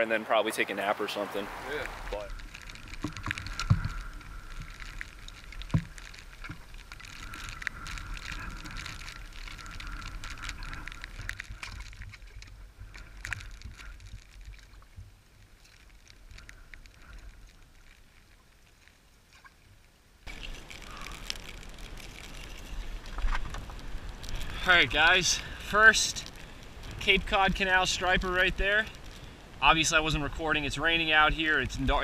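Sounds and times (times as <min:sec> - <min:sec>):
wind rumble on microphone: 0:01.5 - 0:17.6
footsteps on wet rocks: 0:01.5 - 0:32.0.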